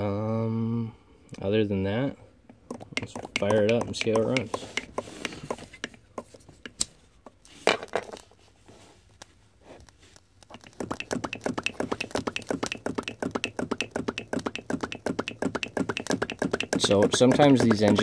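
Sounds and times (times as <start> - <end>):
sharp clicks: 10.5 - 18.0.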